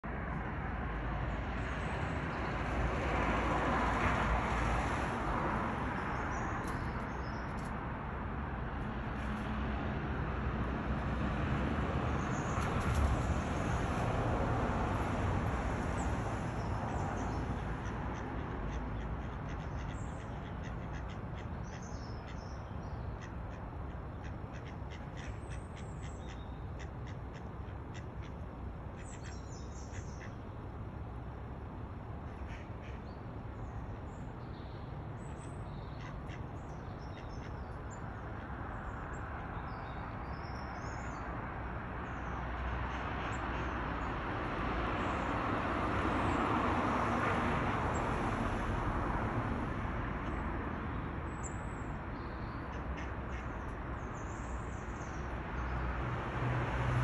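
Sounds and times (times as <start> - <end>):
ducks calling: 17.8 - 21.5, 24.3 - 25.6, 36.0 - 36.5, 52.7 - 53.7.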